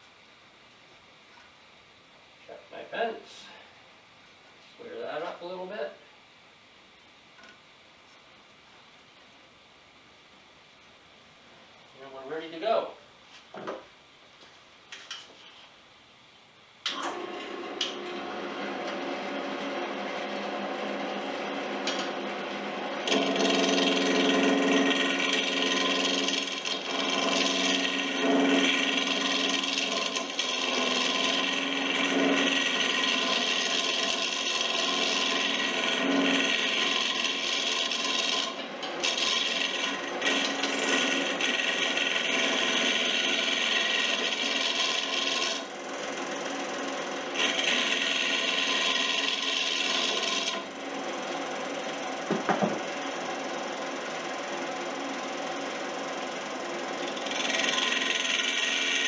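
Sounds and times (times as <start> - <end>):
lathe hum: 16.8 - 59.0
lathe tool cutting wood: 16.9 - 59.0
tool knocking on wooden rack: 52.3 - 52.8.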